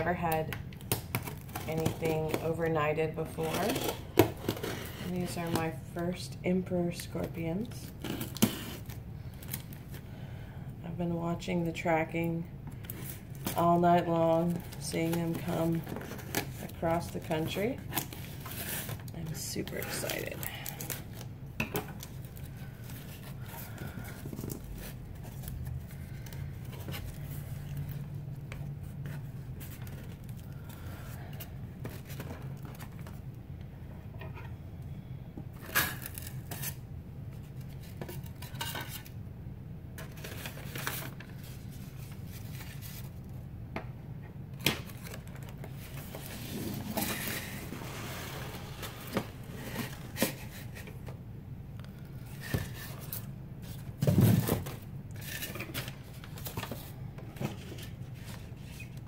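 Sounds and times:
cardboard and foam scraping: 46.0 - 50.7.

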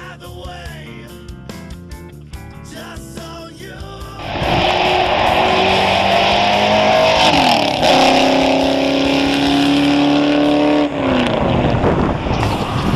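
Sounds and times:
car engine accelerating hard: 4.1 - 12.9.

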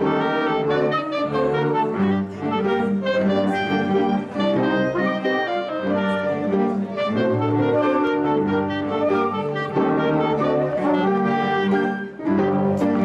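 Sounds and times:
dance orchestra with brass: 0.0 - 13.0.

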